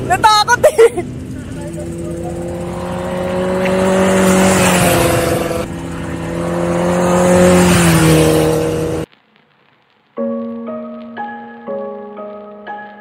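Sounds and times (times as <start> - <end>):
motorcycle engine at high revs: 0.0 - 9.1.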